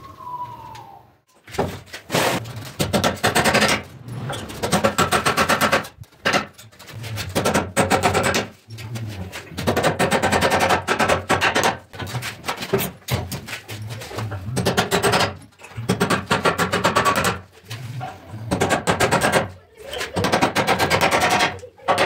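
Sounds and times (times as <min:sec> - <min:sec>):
hammer striking wood: 0:02.7 - 0:03.9, 0:04.7 - 0:06.6, 0:07.2 - 0:08.5, 0:09.6 - 0:12.0.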